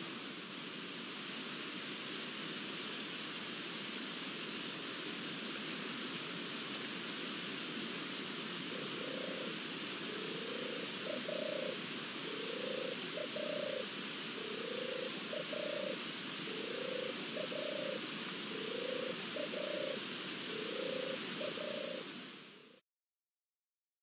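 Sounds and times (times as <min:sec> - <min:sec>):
steady hiss: 0:00.0 - 0:22.8
dove purring: 0:08.7 - 0:22.1.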